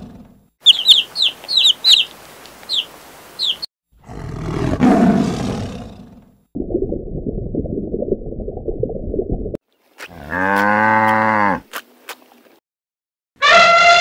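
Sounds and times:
cow mooing: 0:10.2 - 0:11.6.

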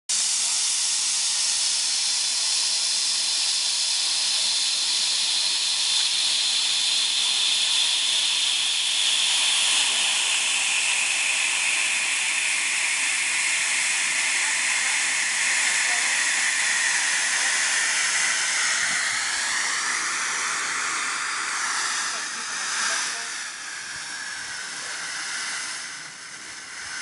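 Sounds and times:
rocket motor exhaust hiss: 0:00.1 - 0:27.0.

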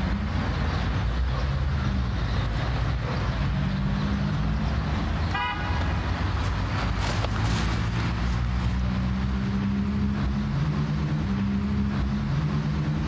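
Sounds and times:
road traffic rumble: 0:00.0 - 0:13.0
car horn toot: 0:05.3 - 0:05.8.

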